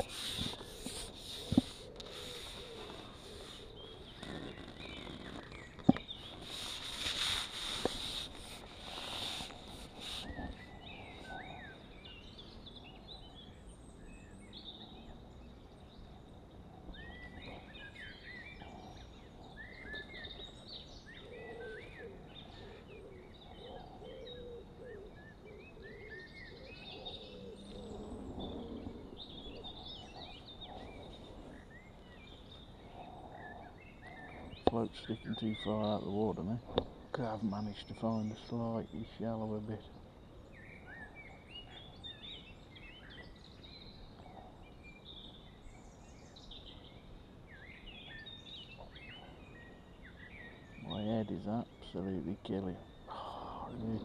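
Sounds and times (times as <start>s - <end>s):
rustling noise: 0.0s - 10.7s
faint outdoor hiss: 0.0s - 54.0s
songbirds chirping: 0.0s - 54.0s.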